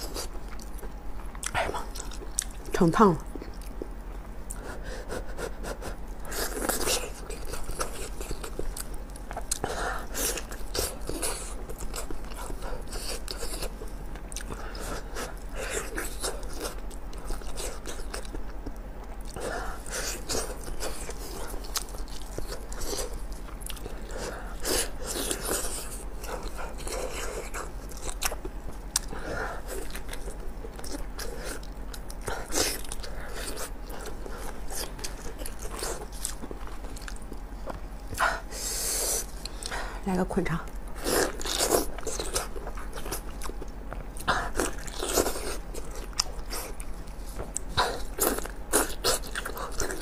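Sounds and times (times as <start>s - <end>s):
biting and chewing food: 0.0s - 4.7s, 5.9s - 38.5s, 40.7s - 50.0s.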